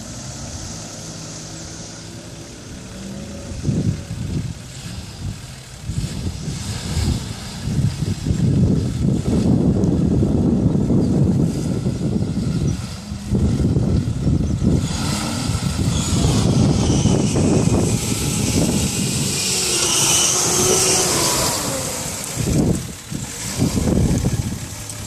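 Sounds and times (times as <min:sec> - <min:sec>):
rushing hiss: 0:00.0 - 0:03.4
diesel engine pulling under load: 0:00.0 - 0:25.0.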